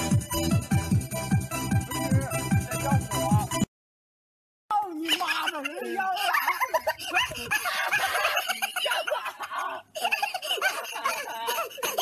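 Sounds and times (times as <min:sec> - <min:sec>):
people laughing: 0:04.9 - 0:12.0.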